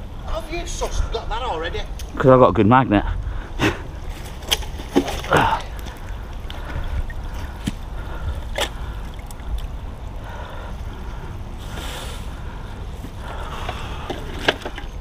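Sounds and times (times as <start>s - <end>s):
wind rumbling on microphone: 2.1s - 15.0s
faint water trickle: 5.2s - 14.1s.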